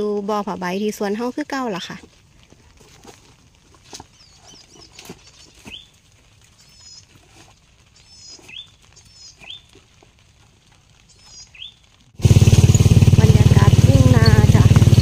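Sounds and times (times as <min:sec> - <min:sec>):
bird chirping: 0:04.0 - 0:09.8, 0:11.0 - 0:11.9, 0:13.9 - 0:15.0.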